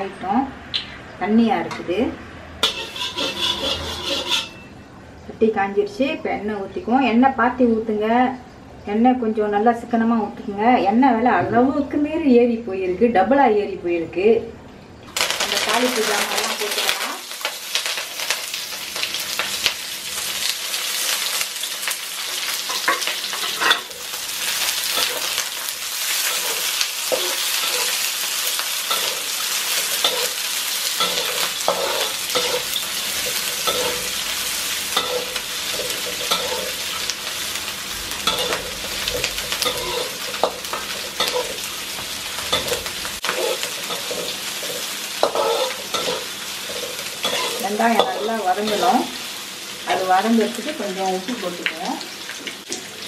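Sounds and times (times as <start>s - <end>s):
onions sizzling in hot oil: 2.6s - 4.7s, 15.1s - 53.0s
spatula scraping and clinking pan: 2.6s - 4.7s, 22.7s - 24.0s, 26.1s - 30.4s, 31.0s - 34.2s, 34.9s - 37.2s, 38.2s - 48.9s.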